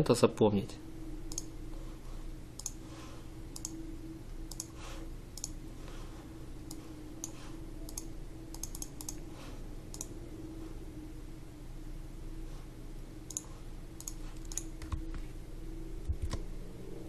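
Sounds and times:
low electrical hum: 0:00.0 - 0:17.0
computer mouse clicking: 0:01.3 - 0:01.5, 0:02.6 - 0:02.8, 0:03.5 - 0:03.8, 0:04.5 - 0:04.8, 0:05.4 - 0:05.6, 0:06.6 - 0:09.2, 0:09.9 - 0:10.1, 0:13.3 - 0:15.2.

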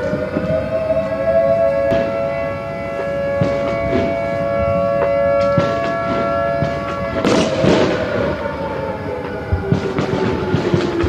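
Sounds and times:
dual-tone warning siren: 0:00.0 - 0:11.0
firework bangs: 0:01.9 - 0:11.0
firework crackling: 0:03.4 - 0:11.0.

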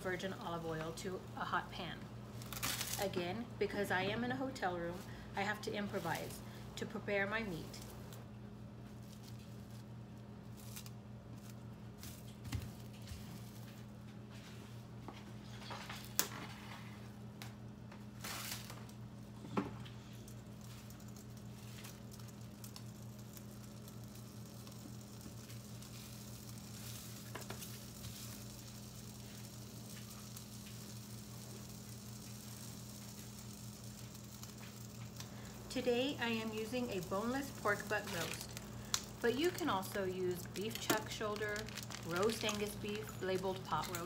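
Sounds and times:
low electrical hum: 0:00.0 - 0:44.0
plastic wrap rustling and crinkling: 0:02.3 - 0:03.2, 0:08.8 - 0:14.8, 0:18.0 - 0:44.0.

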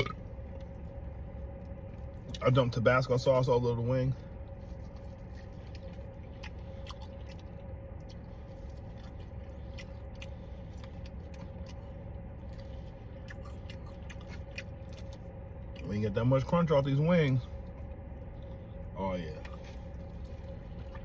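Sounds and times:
person chewing chicken: 0:04.2 - 0:15.9, 0:17.5 - 0:21.0.

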